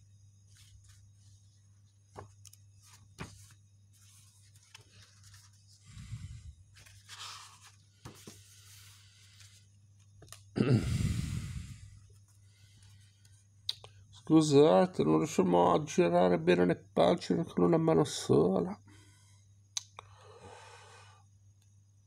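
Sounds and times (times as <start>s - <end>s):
paper pages turning: 0.4s - 5.8s, 6.7s - 10.4s
sharp paper clicks: 2.1s - 5.7s.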